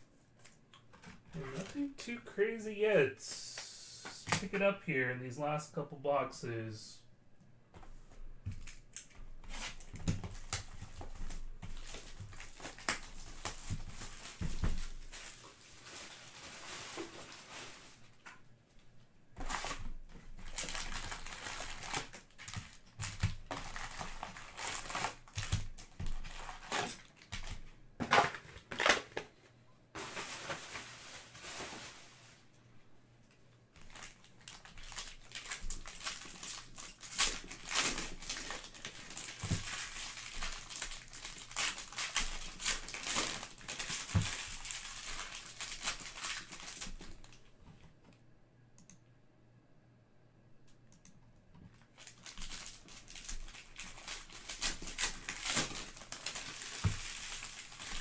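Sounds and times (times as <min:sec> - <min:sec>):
foil packs crinkling and tearing: 0:08.6 - 0:18.2, 0:19.4 - 0:29.3, 0:33.8 - 0:47.3, 0:51.9 - 0:58.0.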